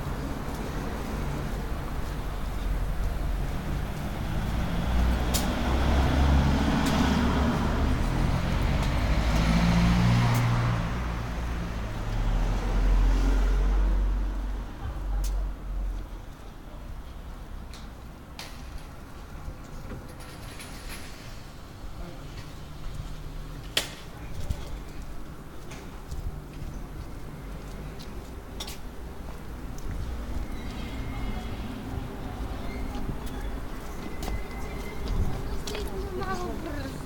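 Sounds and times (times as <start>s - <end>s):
street traffic rumble: 0.0s - 37.0s
vehicle passing: 3.2s - 14.7s.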